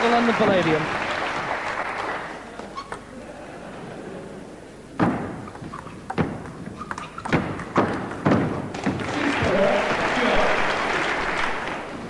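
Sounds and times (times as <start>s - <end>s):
crowd applauding: 0.0s - 2.6s, 9.0s - 12.0s.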